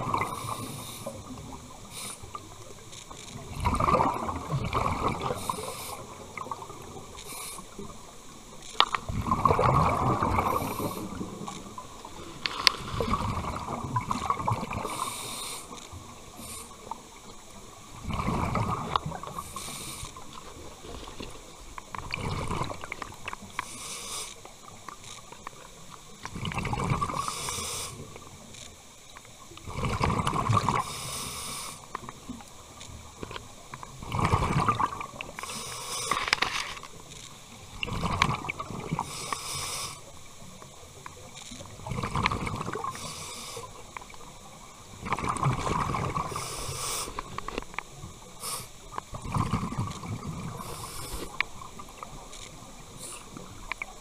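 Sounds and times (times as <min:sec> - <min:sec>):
regulator air hiss: 0:00.3 - 0:02.5, 0:05.3 - 0:06.3, 0:07.0 - 0:07.9, 0:10.4 - 0:13.2, 0:14.8 - 0:17.2, 0:19.2 - 0:20.3, 0:23.4 - 0:24.6, 0:27.2 - 0:28.2, 0:30.8 - 0:32.0, 0:35.3 - 0:36.4, 0:39.0 - 0:40.2, 0:42.8 - 0:43.9, 0:46.2 - 0:47.4, 0:48.2 - 0:49.0, 0:50.5 - 0:51.5, 0:52.8 - 0:53.6
exhaust bubbles rumbling: 0:09.1 - 0:11.4.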